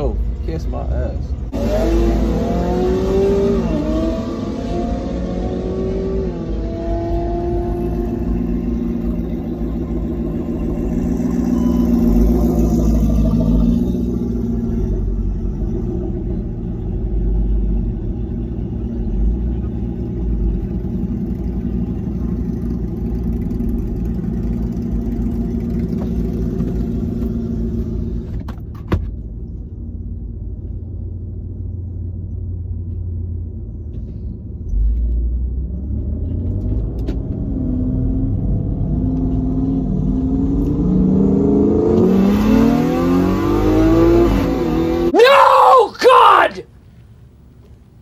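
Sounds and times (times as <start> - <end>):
car engine revving: 1.5 - 28.2, 35.4 - 45.2.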